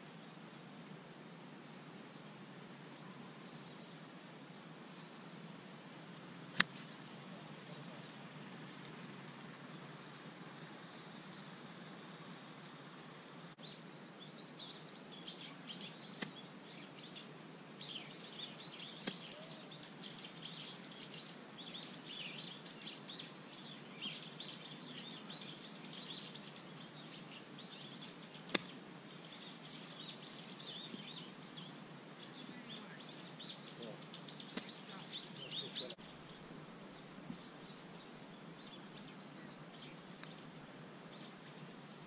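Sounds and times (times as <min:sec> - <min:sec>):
outdoor hiss: 0:00.0 - 0:42.0
birds chirping and twittering: 0:06.6 - 0:42.0.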